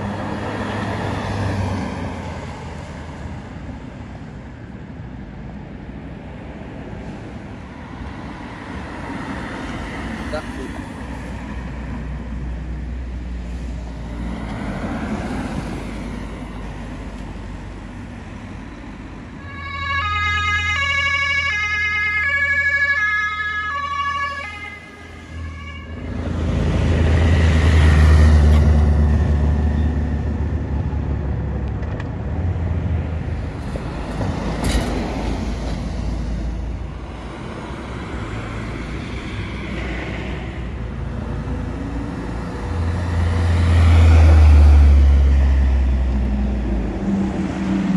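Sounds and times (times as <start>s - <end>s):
passing vehicles rushing by: 0.0s - 47.9s.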